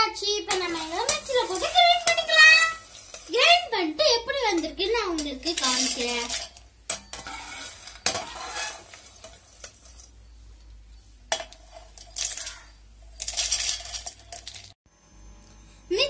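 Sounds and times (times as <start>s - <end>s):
ladle scraping in a pan: 0.5s - 3.6s, 4.5s - 10.3s
peanuts rattling into a steel jar: 5.2s - 6.6s, 11.8s - 14.8s.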